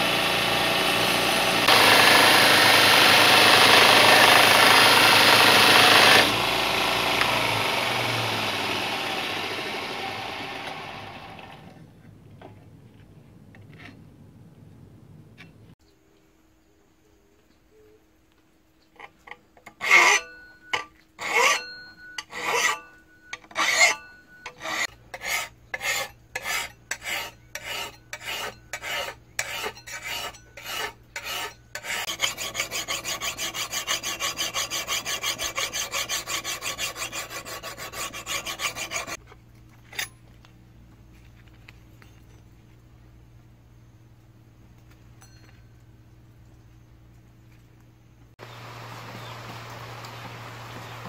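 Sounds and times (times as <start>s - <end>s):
file scraping steel: 0.2s - 10.4s, 19.0s - 39.2s.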